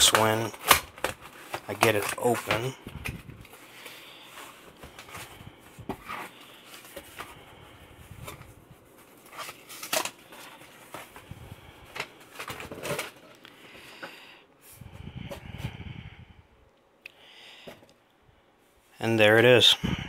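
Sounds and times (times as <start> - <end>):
cardboard box rustling and scraping: 4.3 - 7.4.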